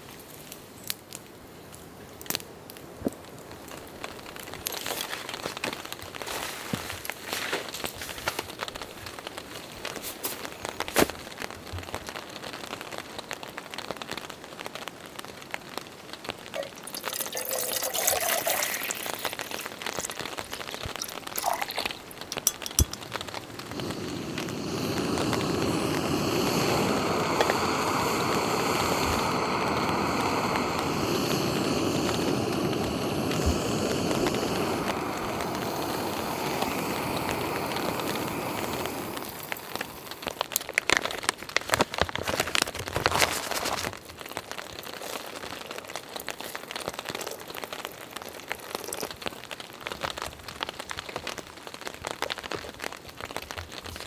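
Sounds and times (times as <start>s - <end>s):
light rain pattering: 0.0s - 54.0s
gas stove burner hissing: 18.8s - 40.6s.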